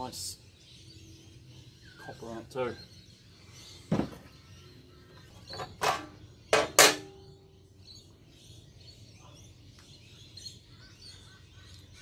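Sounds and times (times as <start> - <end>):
metallic clanks on sheet metal: 5.4 - 7.2.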